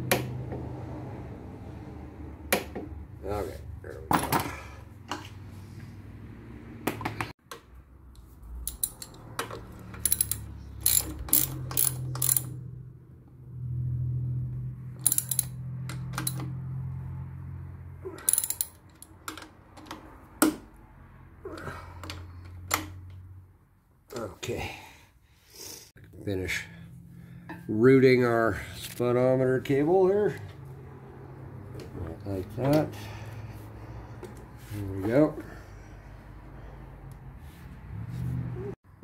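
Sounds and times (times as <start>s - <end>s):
hand ratchet clicking: 8.6s - 12.6s, 15.0s - 16.4s, 18.2s - 20.1s.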